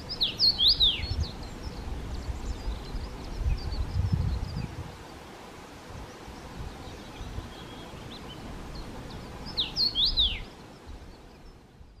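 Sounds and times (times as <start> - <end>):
faint bird chirps: 0.0 - 5.3, 5.9 - 12.0
background hiss: 0.0 - 12.0
bird singing whistled phrase: 0.1 - 1.3, 9.6 - 10.5.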